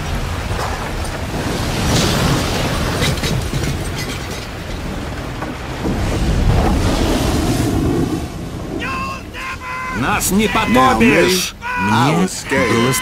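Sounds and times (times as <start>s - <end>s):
rain: 0.0s - 13.0s
waves crashing: 0.0s - 13.0s
wind rushing: 5.7s - 12.6s.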